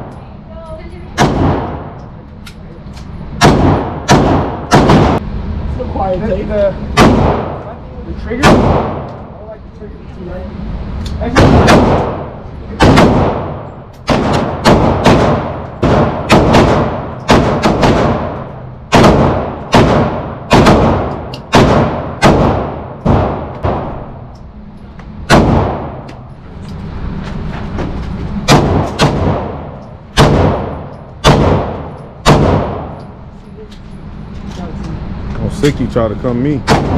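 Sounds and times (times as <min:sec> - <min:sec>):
handgun shots echoing indoors: 0:03.4 - 0:05.2, 0:11.3 - 0:24.1, 0:28.5 - 0:33.1.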